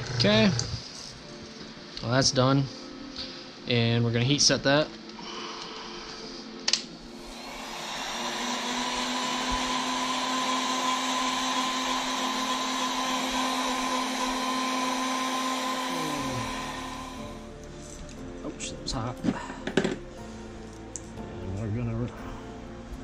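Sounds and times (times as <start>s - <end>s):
heat gun fan blowing hum: 6.7s - 17.5s.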